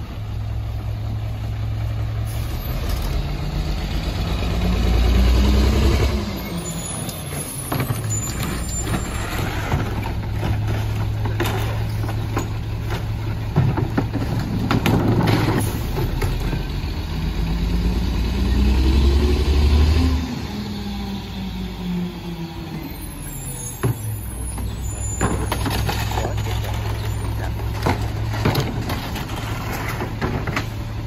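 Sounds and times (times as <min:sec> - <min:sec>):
engine revving: 0:02.6 - 0:06.7, 0:16.2 - 0:22.7
trash cans banging: 0:07.7 - 0:16.6, 0:24.6 - 0:30.8.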